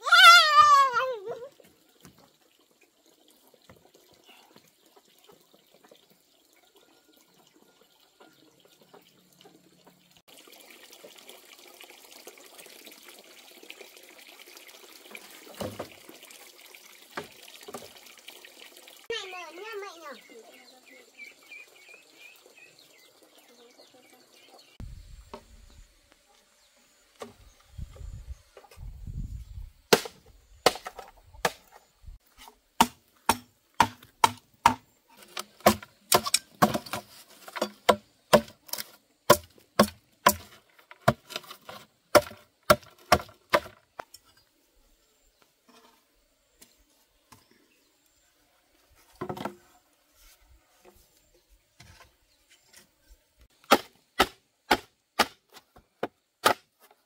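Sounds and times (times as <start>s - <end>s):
chopping wood: 29.9s - 31.8s, 32.8s - 43.8s, 53.6s - 56.8s.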